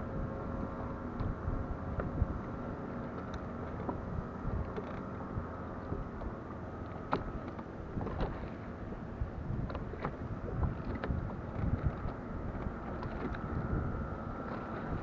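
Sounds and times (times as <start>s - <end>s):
wind buffeting microphone: 0.0s - 6.3s, 7.8s - 15.0s
waves lapping against boat hull: 0.0s - 15.0s.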